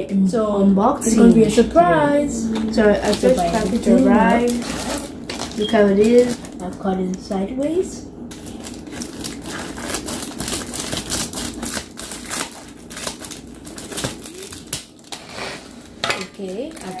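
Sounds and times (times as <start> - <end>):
plastic crinkling: 2.6 - 7.3, 8.3 - 17.0.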